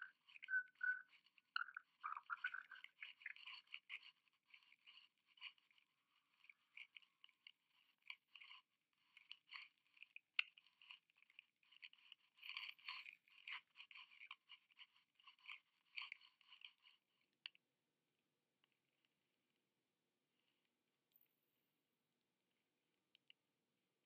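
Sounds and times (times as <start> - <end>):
crackling and scratching: 0.0 - 17.6.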